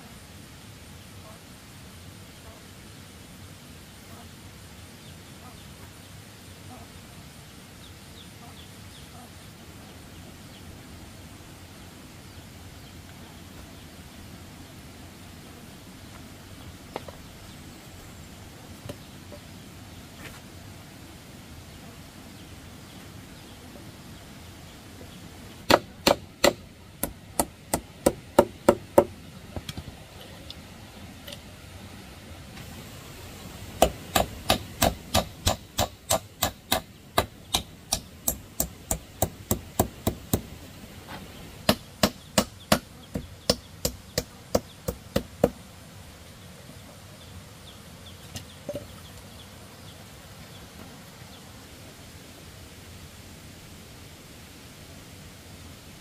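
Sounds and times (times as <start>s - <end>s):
hammer striking nails: 25.7s - 29.1s, 33.8s - 40.5s.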